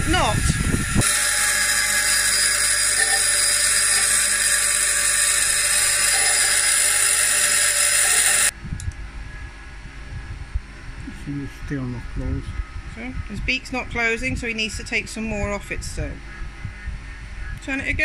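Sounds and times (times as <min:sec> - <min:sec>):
bench grinder grinding metal: 0:00.0 - 0:08.5.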